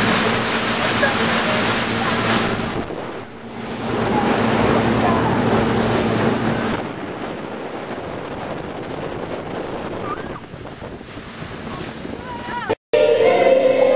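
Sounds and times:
speedboat engine drone: 0.0s - 12.2s
rushing water: 0.0s - 12.8s
wind buffeting microphone: 0.0s - 12.8s.

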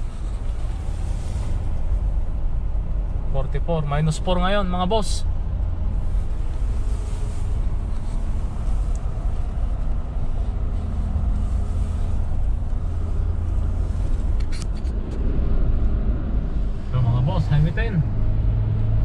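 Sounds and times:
car engine and tyres rumbling: 0.0s - 19.0s.

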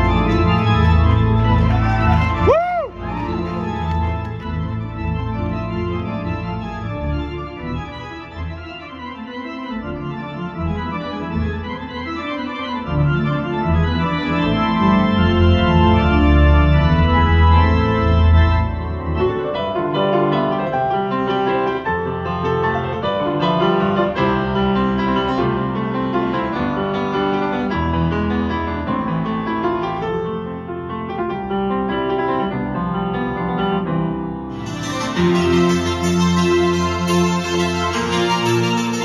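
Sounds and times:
grand piano notes: 0.0s - 39.0s
organ chords over deep bass: 13.0s - 19.0s.

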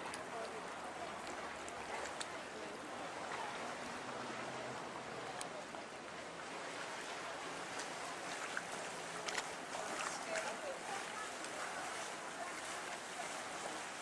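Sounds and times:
faint distant voices: 0.0s - 14.0s
small waves lapping: 0.0s - 14.0s.

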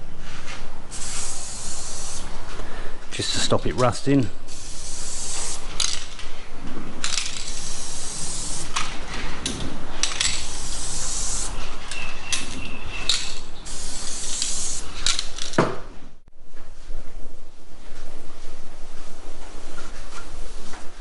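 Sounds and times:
aerosol can spraying: 0.9s - 2.3s, 4.5s - 5.8s, 7.4s - 8.8s, 10.2s - 11.6s, 13.2s - 14.9s.

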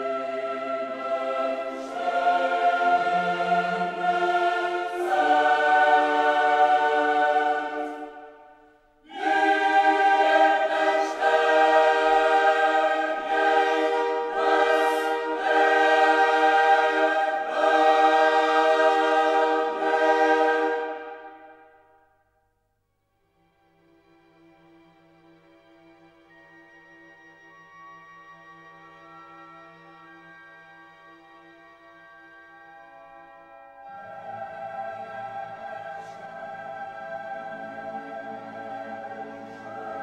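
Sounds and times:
choir singing held chords: 0.0s - 22.1s, 33.4s - 40.0s.

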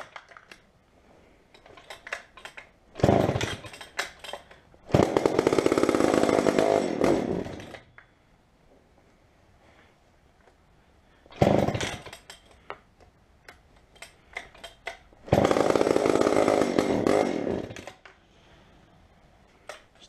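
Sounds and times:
chainsaw engine firing briefly: 3.0s - 3.7s, 11.4s - 12.0s.

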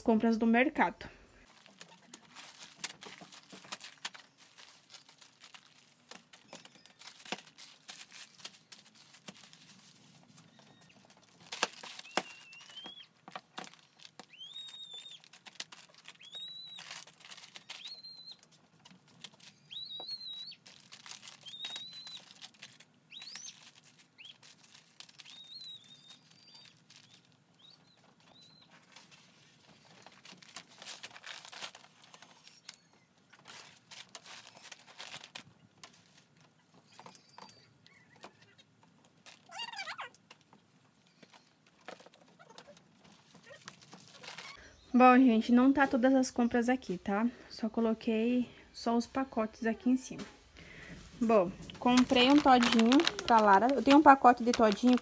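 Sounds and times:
plastic bags crinkling: 1.4s - 44.7s, 50.1s - 55.0s
bird chirping: 10.4s - 18.5s, 19.4s - 20.7s, 21.3s - 22.4s, 23.0s - 29.6s, 36.6s - 38.8s.

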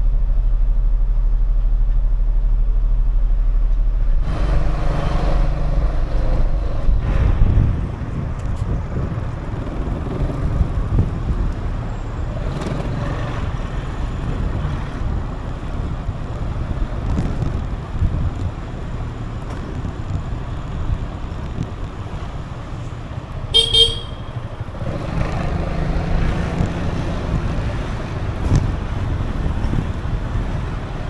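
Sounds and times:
wind rushing over microphone: 0.0s - 31.0s
scooter engine: 22.2s - 31.0s.

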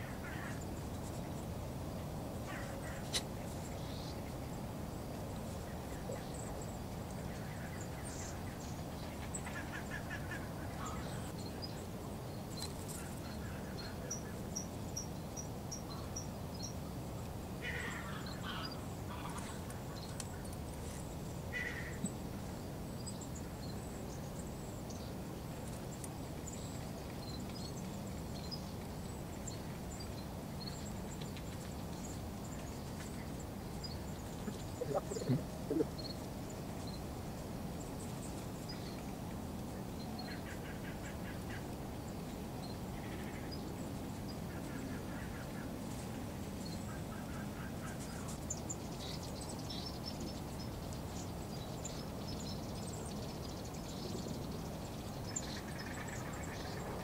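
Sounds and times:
small birds chirping: 2.4s - 37.2s
short loud bird calls: 34.4s - 36.0s.

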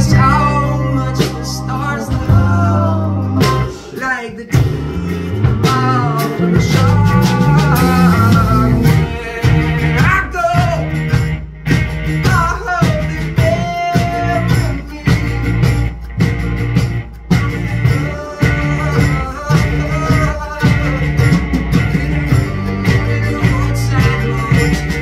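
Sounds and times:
person singing: 0.0s - 11.0s, 12.3s - 15.9s, 17.3s - 25.0s
bass line: 0.0s - 25.0s
guitars: 0.0s - 25.0s.

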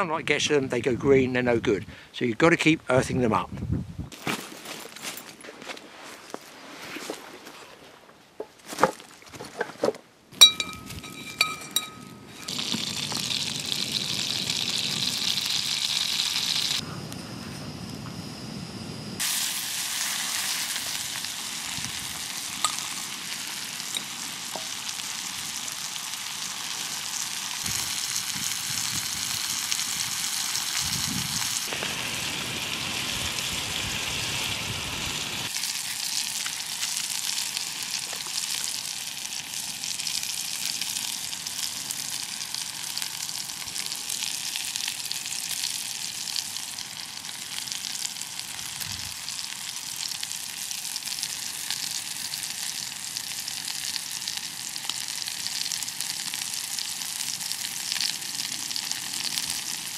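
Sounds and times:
fat sizzling in frying pan: 10.4s - 16.8s, 19.2s - 59.9s.

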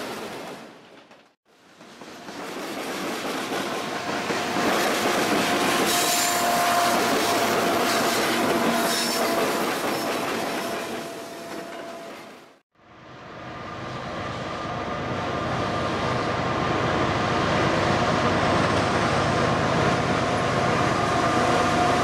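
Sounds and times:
train wheels clattering over rail joints: 0.1s - 6.4s.

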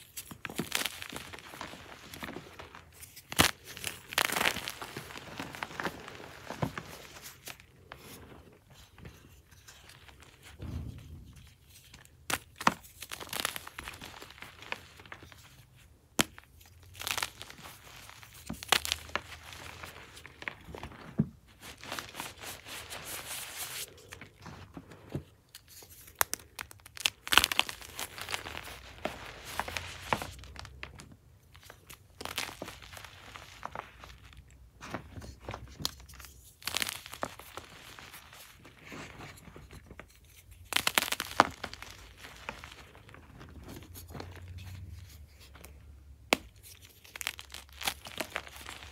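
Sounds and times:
chalk blocks crunching by hand: 0.0s - 8.2s, 16.2s - 31.0s, 35.2s - 48.9s.

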